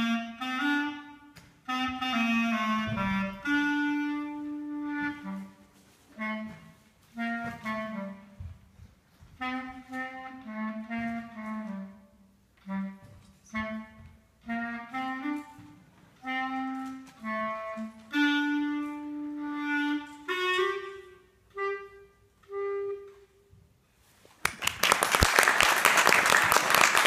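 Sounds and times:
clarinet melody: 0:00.0 - 0:24.0
applause: 0:24.4 - 0:27.0.

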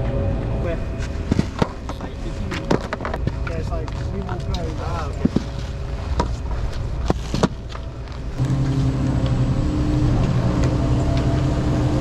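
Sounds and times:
skis and poles clacking on snow: 0:01.0 - 0:08.4
chairlift mechanical hum: 0:04.3 - 0:12.0.

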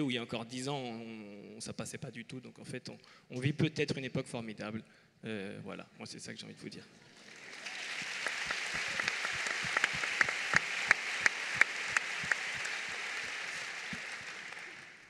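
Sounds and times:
audience applauding: 0:07.1 - 0:15.0.

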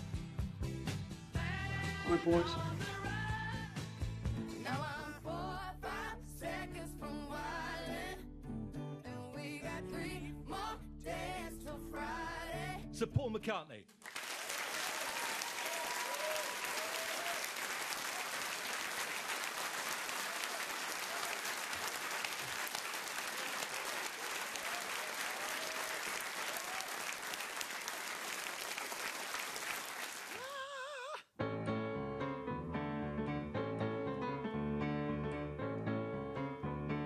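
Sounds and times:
audience applauding: 0:14.0 - 0:30.6
whoops and cheers: 0:14.6 - 0:18.4, 0:24.5 - 0:27.2
grand piano chords: 0:31.4 - 0:37.0.

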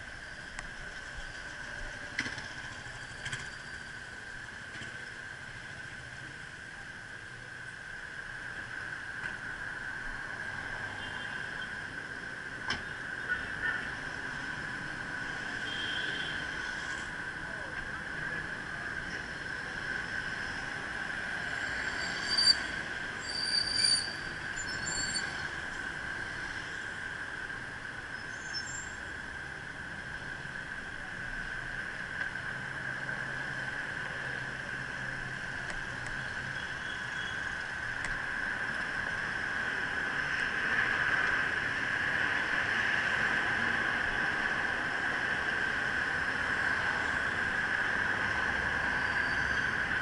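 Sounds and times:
city street traffic: 0:00.0 - 0:50.0
steady high whine: 0:00.0 - 0:50.0
short high-pitched squeals: 0:21.6 - 0:25.5.

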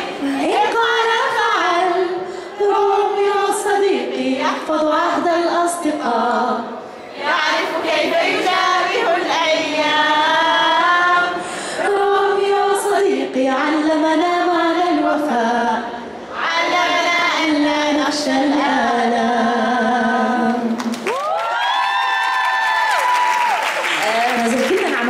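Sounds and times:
woman singing into microphone: 0:00.2 - 0:06.8.

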